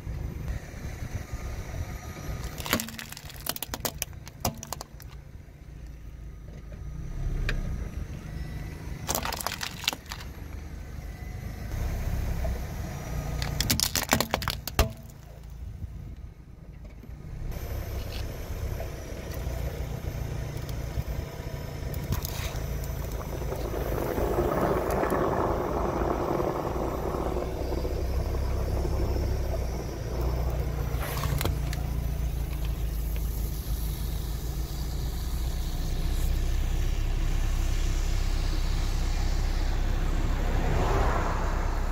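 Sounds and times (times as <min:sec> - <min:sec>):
car running slowly: 0:00.0 - 0:41.9
objects cracking under tyre: 0:02.3 - 0:05.2, 0:09.0 - 0:10.7, 0:13.3 - 0:15.6, 0:21.9 - 0:33.3.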